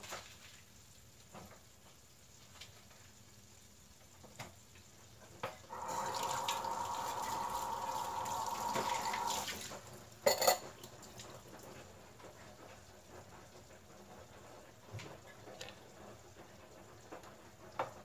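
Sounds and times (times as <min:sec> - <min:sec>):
tap water running: 0:05.2 - 0:12.6.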